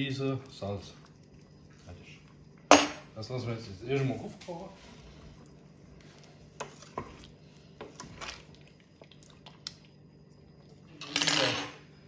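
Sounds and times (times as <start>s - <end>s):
spoon stirring thick sauce: 4.8s - 9.6s.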